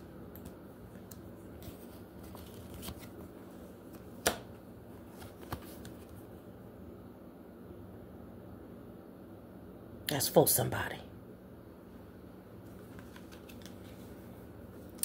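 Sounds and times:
cards clicking and tapping: 3.9s - 6.1s, 12.9s - 13.9s.

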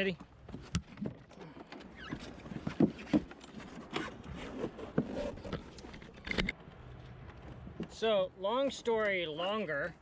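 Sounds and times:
thumps and knocks in dinghy: 0.4s - 6.5s.

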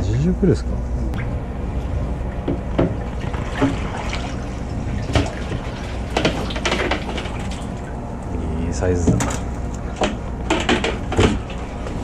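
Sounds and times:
low steady hum: 0.0s - 12.0s
water sloshing and splashing: 1.1s - 8.2s
sharp knocks: 2.4s - 3.0s.

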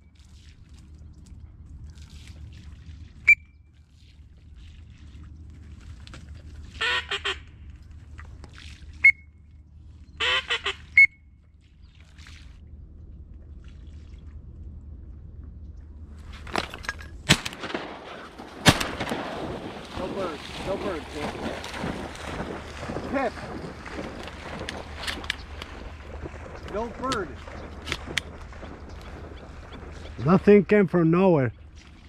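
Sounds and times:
sharp whistle peeps: 3.2s - 3.6s, 9.0s - 9.4s, 10.9s - 11.2s
duck quacking: 6.8s - 7.4s, 10.2s - 11.1s.

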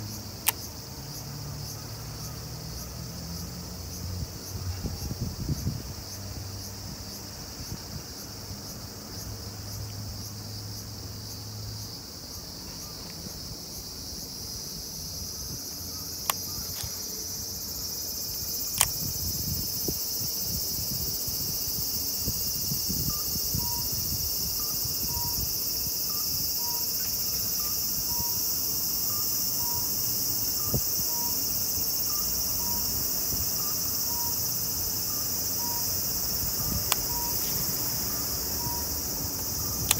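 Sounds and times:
insect chorus: 0.0s - 39.9s
sharp clicks: 0.4s - 0.7s, 16.2s - 17.0s, 18.7s - 19.1s, 36.8s - 37.7s, 39.7s - 39.9s
faint repeating beep: 38.1s - 39.0s.

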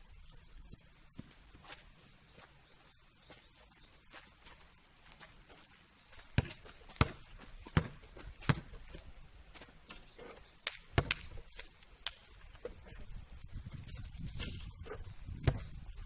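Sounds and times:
footsteps on gravel: 0.0s - 16.0s
basketball bouncing and caught: 6.4s - 8.8s, 10.9s - 11.4s.

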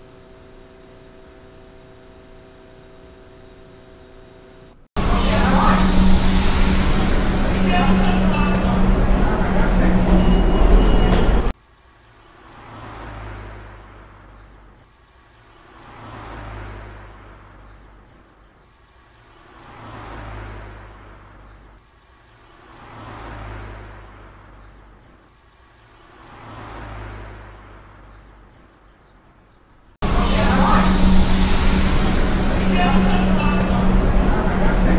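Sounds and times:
loud dense rushing sound: 5.0s - 11.6s, 30.0s - 34.9s
cars passing: 5.0s - 18.1s, 18.8s - 28.5s, 30.0s - 34.9s.

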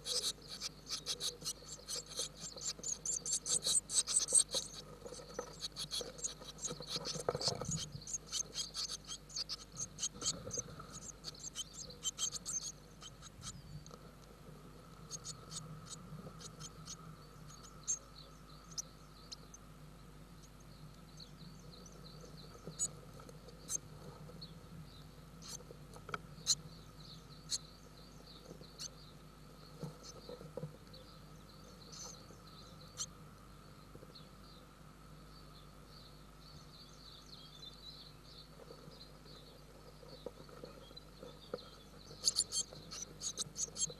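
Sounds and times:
scratching and rustling in nest: 0.0s - 13.3s, 40.1s - 43.9s
faint steady hum: 0.0s - 43.9s.

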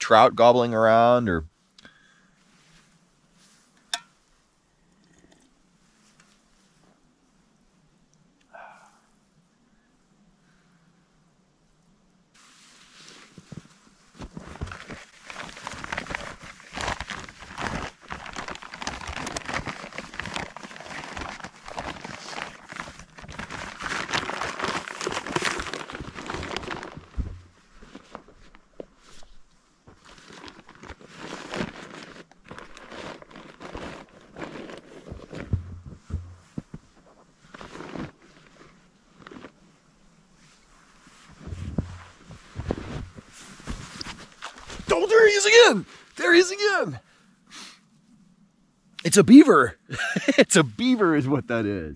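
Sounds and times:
crunching and crinkling: 12.4s - 39.8s, 40.4s - 46.4s.

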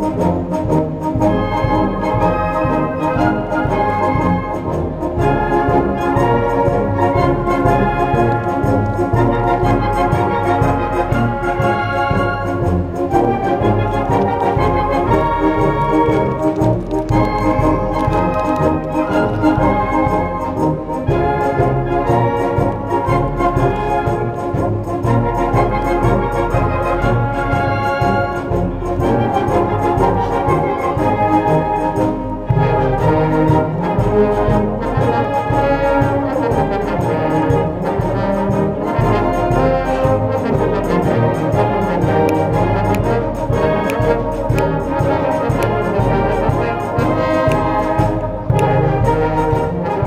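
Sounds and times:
brass playing: 0.0s - 50.0s
concert band playing: 0.0s - 50.0s.

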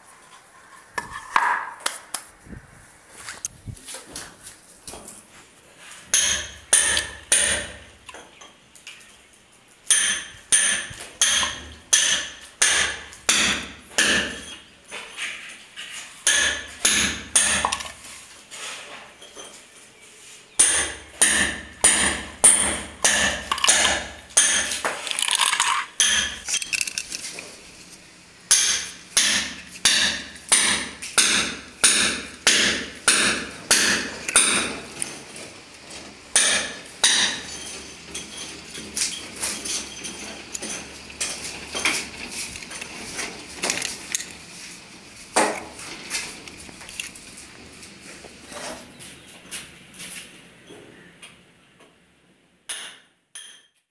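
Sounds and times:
hammer blows ringing on metal: 6.1s - 7.9s, 9.9s - 14.6s, 16.2s - 17.7s, 20.6s - 24.8s, 28.5s - 34.8s, 36.3s - 37.8s.

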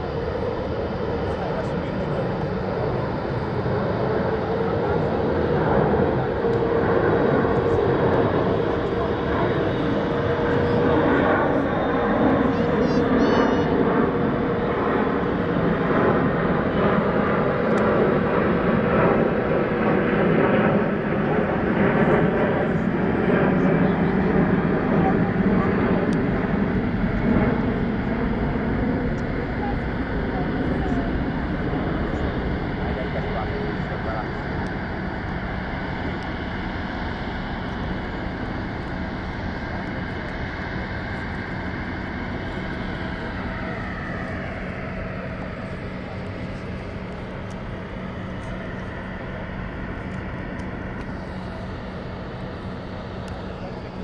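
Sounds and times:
jet engines rushing overhead: 0.0s - 54.0s.

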